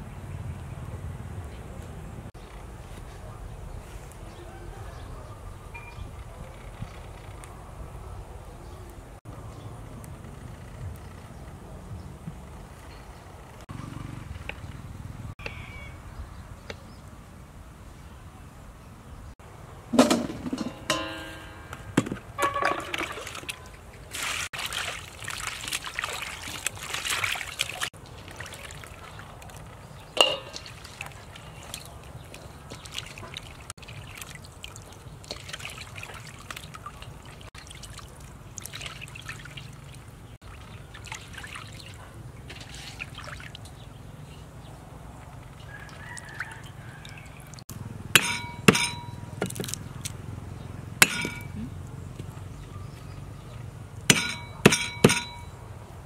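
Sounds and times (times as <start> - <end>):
water sloshing in a steel bowl: 22.4 - 43.8, 48.2 - 49.8, 51.0 - 51.8, 54.1 - 55.5.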